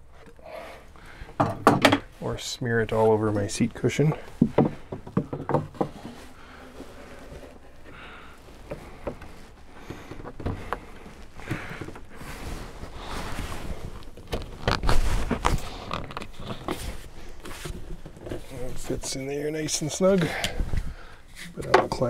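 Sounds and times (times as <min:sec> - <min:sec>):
wood scraping: 0:00.0 - 0:22.0
wood knocking and tapping: 0:01.4 - 0:02.1, 0:04.4 - 0:06.2.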